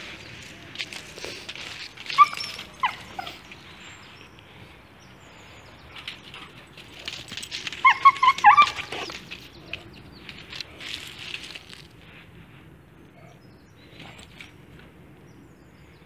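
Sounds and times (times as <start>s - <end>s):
dog whining: 2.0s - 3.5s, 7.8s - 9.1s
dog yelping: 2.0s - 3.5s, 7.8s - 9.1s.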